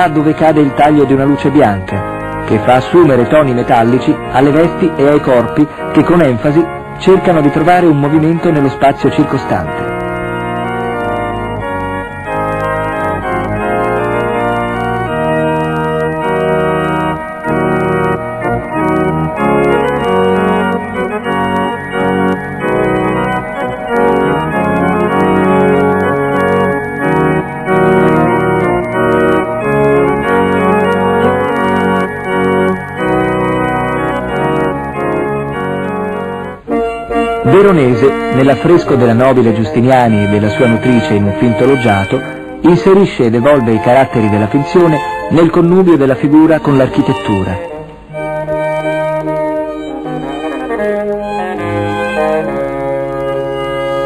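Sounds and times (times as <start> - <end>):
slow organ chords: 0.0 - 54.0.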